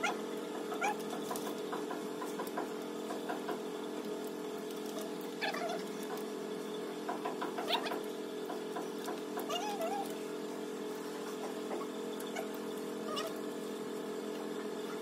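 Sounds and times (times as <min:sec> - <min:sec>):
puppy whimpering: 0:00.0 - 0:01.0, 0:05.4 - 0:06.0, 0:07.6 - 0:08.0, 0:09.4 - 0:10.2, 0:11.7 - 0:13.5
steady low hum: 0:00.0 - 0:15.0.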